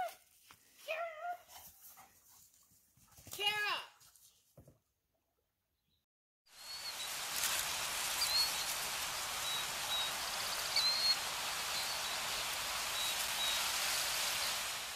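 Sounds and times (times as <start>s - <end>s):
rain-like hiss: 6.5s - 14.9s
high bird chirps: 8.1s - 14.7s.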